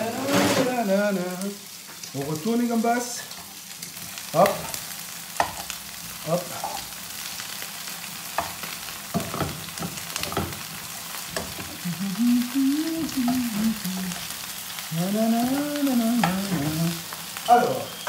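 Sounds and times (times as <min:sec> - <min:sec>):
prawns sizzling in oil: 0:00.0 - 0:18.0
person humming: 0:11.6 - 0:18.0.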